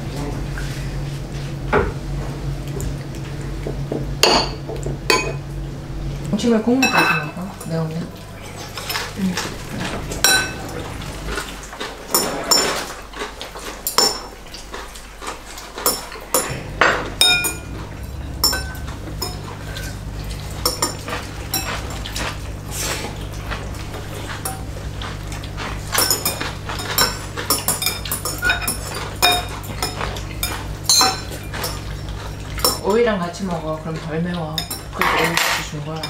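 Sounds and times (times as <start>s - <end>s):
low hum: 0.0s - 12.2s, 16.2s - 32.8s.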